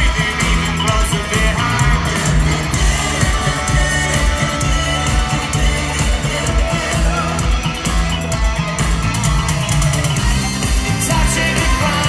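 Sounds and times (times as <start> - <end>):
live rock band playing: 0.0 - 12.0
steady drum beat: 0.0 - 12.0.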